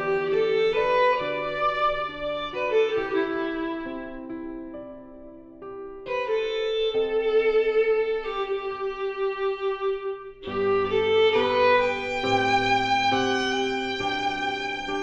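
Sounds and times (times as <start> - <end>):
violin playing slow melody: 0.0 - 4.5, 6.0 - 15.0
piano accompaniment: 0.0 - 15.0.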